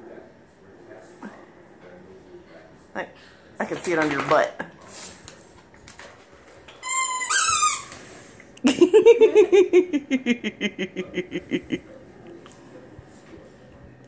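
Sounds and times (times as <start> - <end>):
girl giggling: 8.6 - 11.8.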